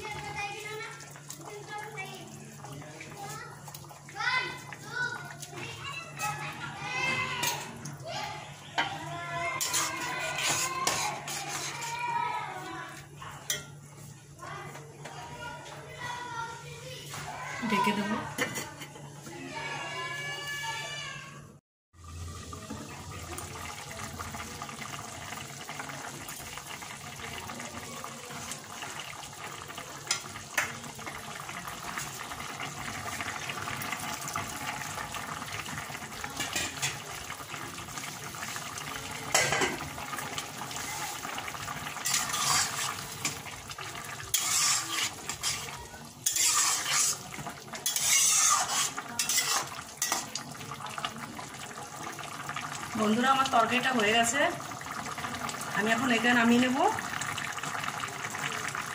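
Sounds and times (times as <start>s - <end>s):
curry bubbling: 0.0s - 14.8s, 22.0s - 58.9s
metal spatula scraping pan: 9.6s - 12.0s, 42.0s - 43.4s, 44.2s - 50.3s.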